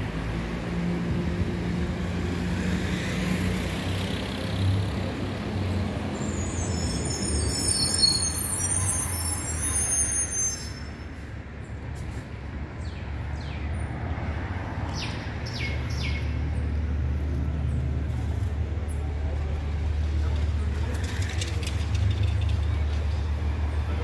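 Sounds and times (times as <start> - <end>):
traffic engine drone: 0.0 - 24.0
high brake squeal: 6.2 - 11.3.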